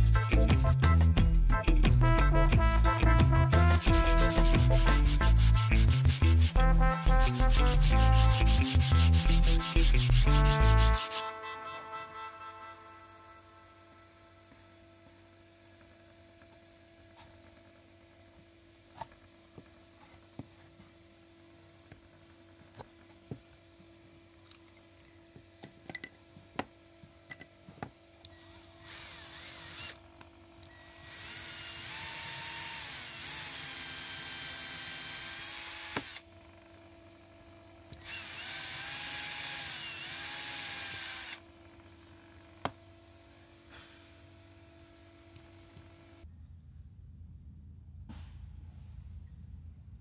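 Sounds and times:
cordless drill boring wood: 0:07.4 - 0:11.2, 0:28.2 - 0:36.8, 0:37.9 - 0:42.6.

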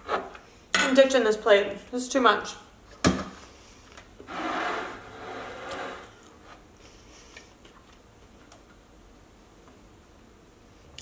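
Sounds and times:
ceramic platter scraping on table: 0:04.3 - 0:06.2.

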